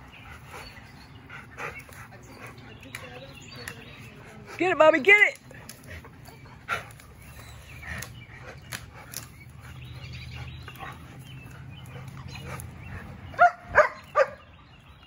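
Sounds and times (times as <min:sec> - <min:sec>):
dog barking: 0:13.4 - 0:14.5.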